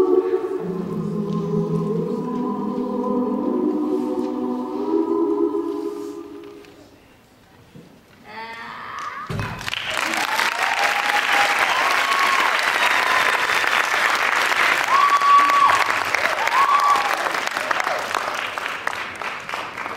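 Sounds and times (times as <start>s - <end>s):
music: 0.0s - 6.4s
audience cheering: 9.3s - 18.2s
audience applause: 9.4s - 19.9s.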